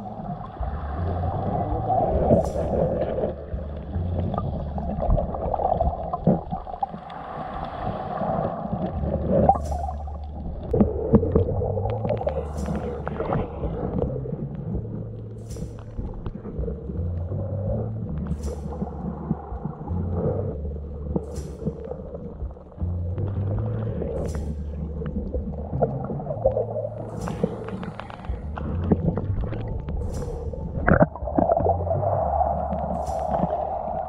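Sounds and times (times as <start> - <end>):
muffled underwater water slosh: 0.0 - 34.0
brief hisses: 27.1 - 28.4.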